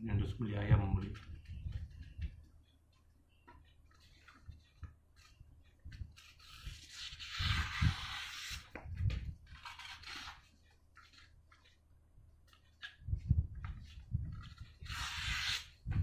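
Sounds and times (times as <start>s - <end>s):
knife slicing paper: 14.8s - 15.7s.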